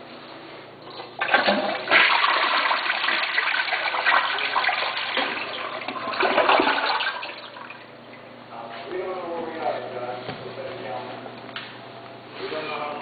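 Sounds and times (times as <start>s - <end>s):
toilet flushing: 0.8s - 8.2s.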